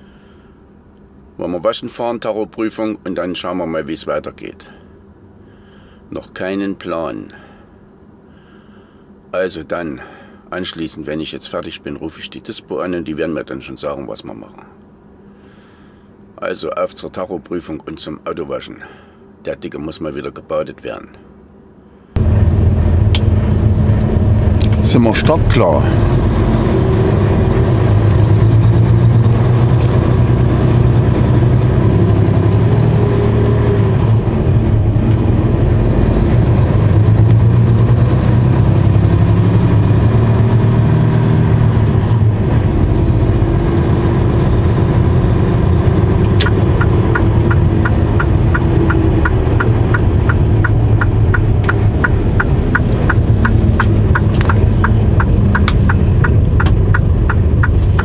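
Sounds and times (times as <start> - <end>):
truck engine running: 22.2 - 40.7, 41.6 - 58.0
regular clicking: 46.4 - 58.0.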